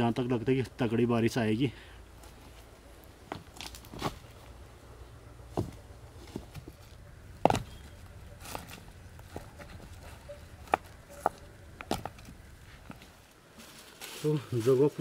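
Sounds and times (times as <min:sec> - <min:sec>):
crunches on dry leaf litter: 0:12.7 - 0:15.0.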